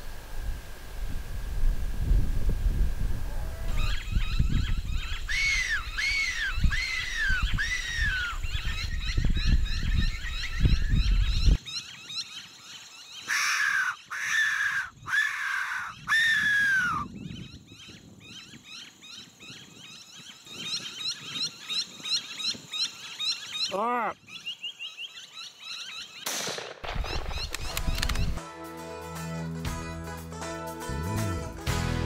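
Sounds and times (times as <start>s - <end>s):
wind rumble on microphone: 0.0s - 11.6s, 15.9s - 22.8s, 26.9s - 28.4s
predator call whistle squeals: 13.3s - 17.1s.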